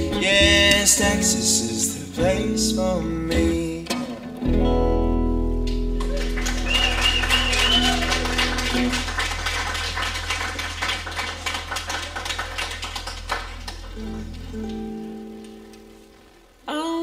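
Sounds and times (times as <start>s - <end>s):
upright bass: 0.0s - 16.2s
guitars strumming: 0.0s - 16.7s.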